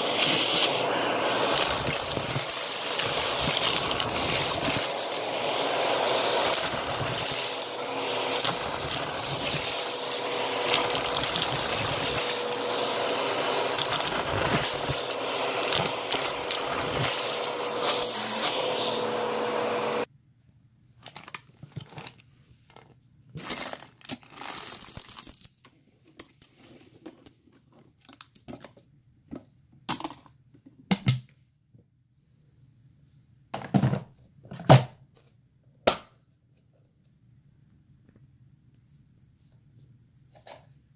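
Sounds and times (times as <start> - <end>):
appliance motor whining: 0.0 - 20.1
coins clinking: 1.5 - 5.0, 6.3 - 12.4, 13.5 - 17.2, 23.4 - 25.6.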